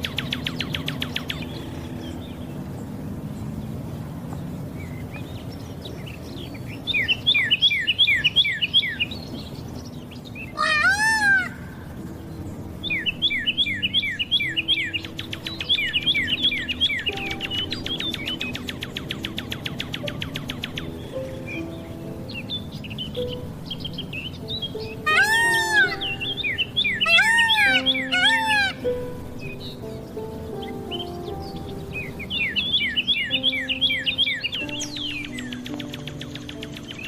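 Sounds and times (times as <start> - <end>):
birds chirping and trilling: 0.0 - 37.0
rising and falling bird call: 0.0 - 37.0.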